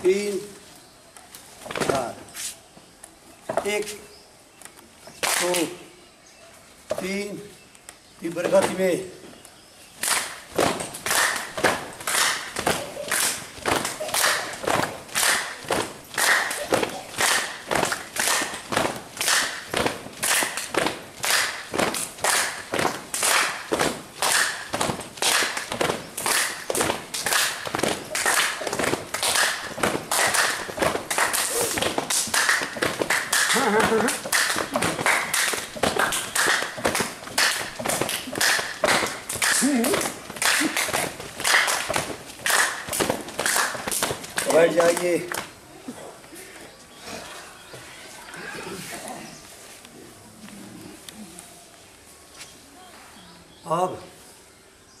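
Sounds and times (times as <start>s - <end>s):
hands clapping fast: 10.0s - 45.5s.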